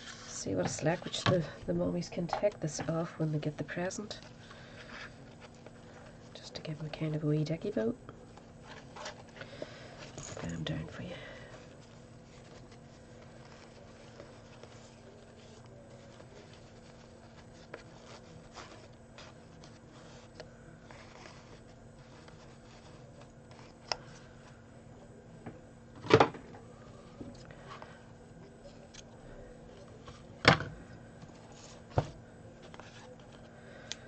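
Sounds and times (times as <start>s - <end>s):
faint steady hum: 0.0s - 34.0s
fabric ribbon rustling: 8.3s - 24.5s.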